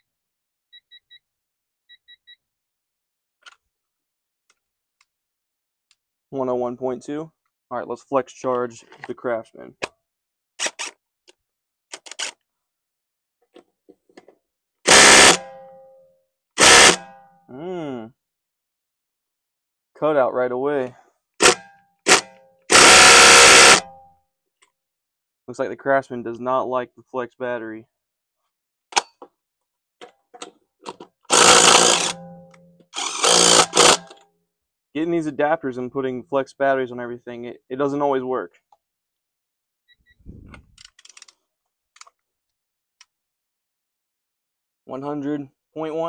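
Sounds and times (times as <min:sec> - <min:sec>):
impact driver hammering lug nut: 0:14.9 - 0:15.6, 0:16.6 - 0:17.1, 0:21.4 - 0:23.8, 0:31.3 - 0:34.2
metallic ring: 0:32.0 - 0:32.8.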